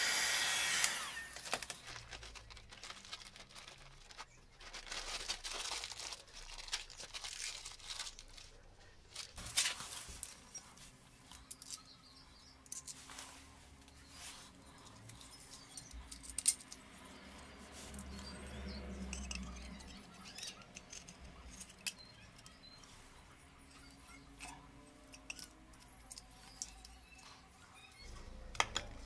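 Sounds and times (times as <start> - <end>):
small metal and plastic parts clicking: 11.3 - 12.0, 14.7 - 17.2, 19.0 - 22.6, 23.8 - 27.3.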